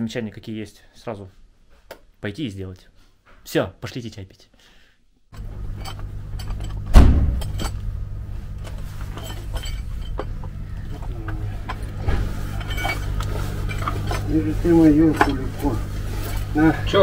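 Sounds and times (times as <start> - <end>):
metal clinks and knocks: 5.4 - 16.7
low machine hum: 5.4 - 17.0
heavy thump: 6.9 - 7.7.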